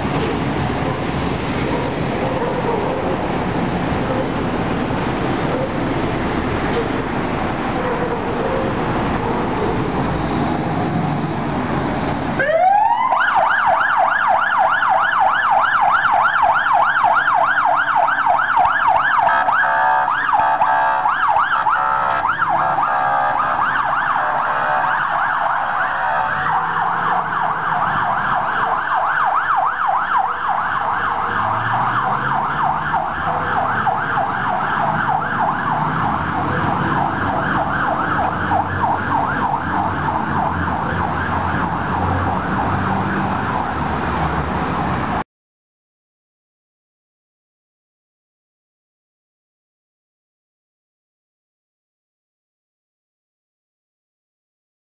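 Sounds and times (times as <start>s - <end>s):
fire engine diesel engine: 0.0s - 45.2s
electronic siren yelp: 12.4s - 43.3s.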